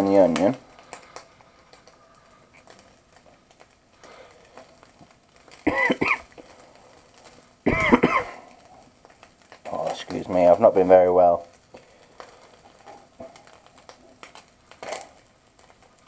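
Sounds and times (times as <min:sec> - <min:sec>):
person coughing: 0:05.7 - 0:06.3, 0:07.7 - 0:08.4.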